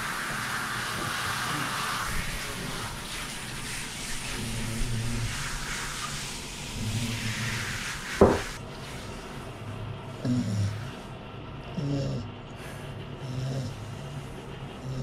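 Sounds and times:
shower spraying water: 0.0 - 9.7
dog grunting: 10.1 - 15.0.

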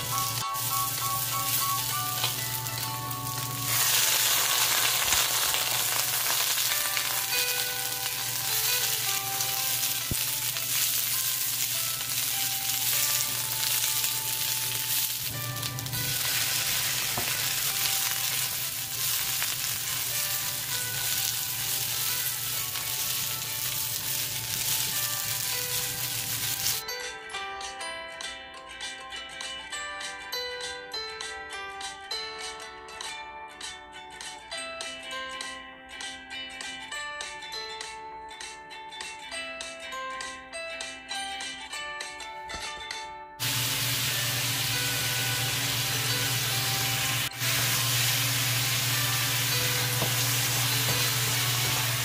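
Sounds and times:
vegetables sizzling in a wok: 0.0 - 26.8, 43.4 - 52.0
soft background music: 0.0 - 52.0.

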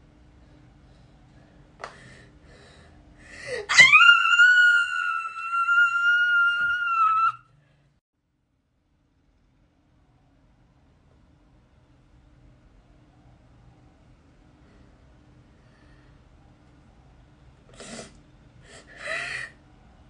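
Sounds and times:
woman mock-crying wail: 3.7 - 7.4.

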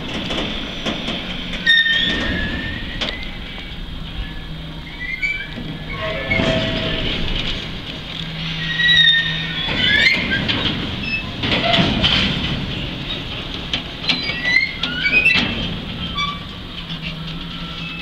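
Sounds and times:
train rumbling: 0.0 - 18.0
train wheels squealing: 1.6 - 7.4, 8.2 - 11.8, 14.1 - 18.0
metallic clanks: 5.4 - 18.0.

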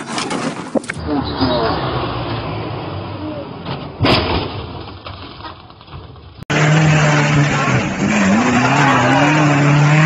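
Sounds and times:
off-road engine revving hard: 6.5 - 10.0.

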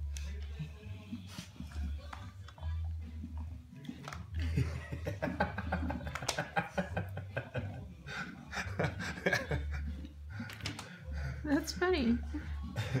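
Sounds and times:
dog chewing pumpkin: 0.0 - 4.4
person chuckling: 4.3 - 10.6.

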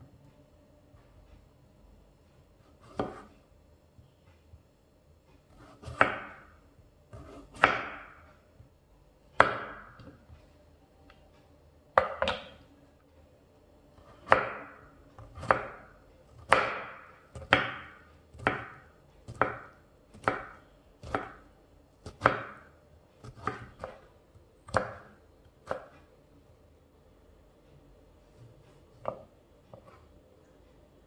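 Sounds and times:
knife chopping on wooden board: 2.8 - 3.3, 5.5 - 6.5, 7.1 - 8.3, 9.4 - 10.2, 12.0 - 12.6, 14.2 - 21.4, 22.0 - 24.1, 24.7 - 25.9, 29.0 - 30.0.

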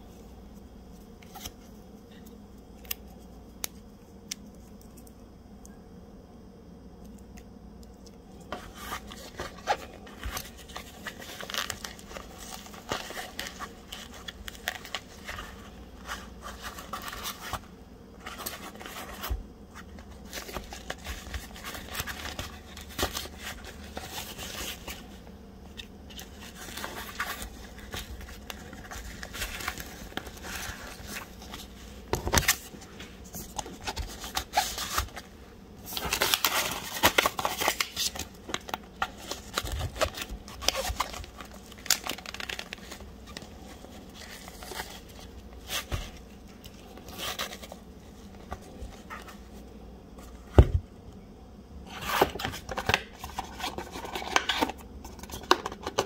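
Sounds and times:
hands handling packaging: 8.0 - 49.6, 51.9 - 56.0.

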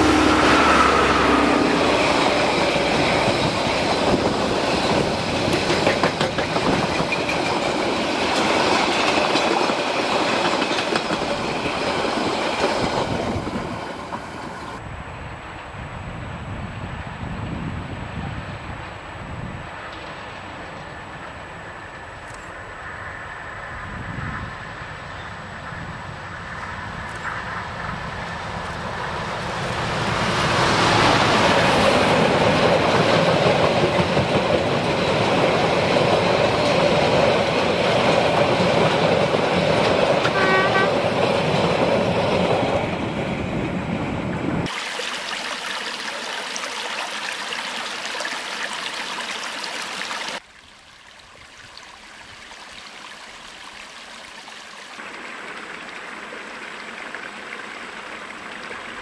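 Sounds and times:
diesel locomotive passing: 0.0 - 44.7
creek running over stones: 44.6 - 59.0.

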